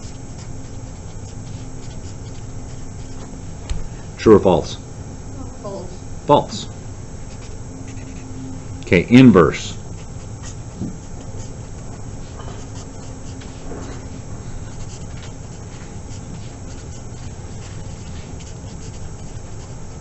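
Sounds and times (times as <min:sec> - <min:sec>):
marker writing on paper: 0:00.0 - 0:03.3, 0:07.3 - 0:08.2, 0:10.0 - 0:13.6, 0:14.6 - 0:20.0
low hum: 0:00.0 - 0:16.9.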